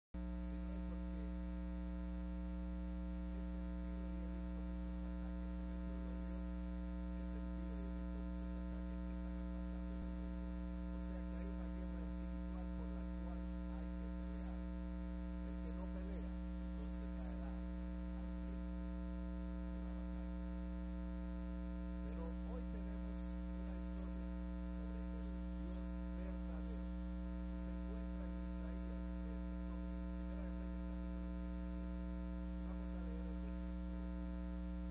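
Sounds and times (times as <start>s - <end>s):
electrical mains hum: 0.2s - 34.9s
faint voice: 11.0s - 18.8s, 21.9s - 34.8s.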